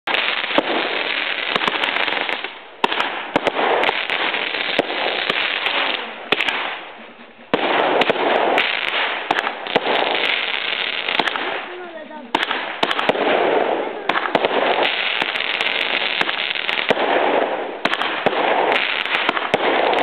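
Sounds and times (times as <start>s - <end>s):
fireworks crackling pops: 0.0s - 20.0s
fireworks hissing spray: 3.8s - 12.9s.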